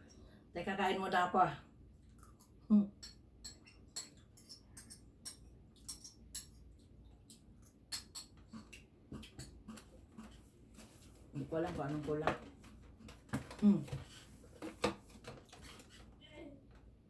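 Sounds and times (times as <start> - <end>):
spoon and mouth chewing clicks: 2.0 - 10.4.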